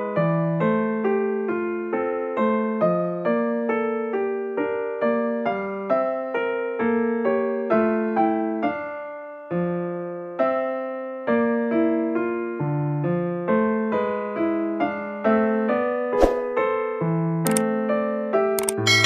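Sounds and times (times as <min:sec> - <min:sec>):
slow piano tune: 0:00.0 - 0:19.0.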